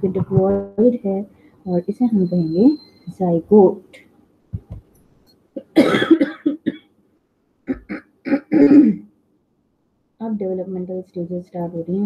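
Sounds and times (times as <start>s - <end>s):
person clearing throat: 5.6s - 6.9s, 7.7s - 9.1s
person coughing: 5.6s - 6.9s, 7.7s - 9.1s.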